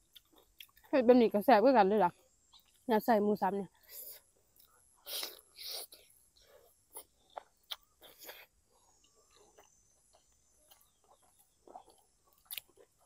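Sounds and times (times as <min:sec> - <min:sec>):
chewing with wet mouth sounds: 0:00.0 - 0:01.0, 0:04.3 - 0:13.0
high hum of insects: 0:00.0 - 0:13.0.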